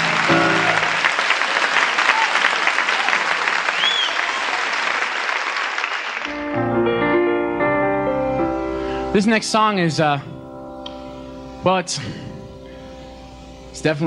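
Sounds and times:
piano playing: 0.0s - 1.5s, 6.3s - 14.0s
audience applauding: 0.0s - 6.5s.

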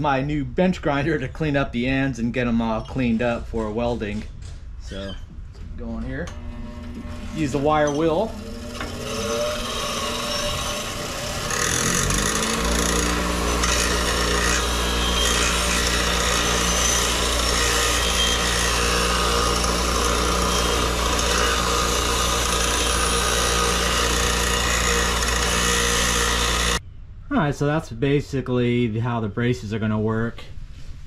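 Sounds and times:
bench grinder motor humming: 6.3s - 26.8s
wire wheel scratching metal: 6.3s - 26.8s.

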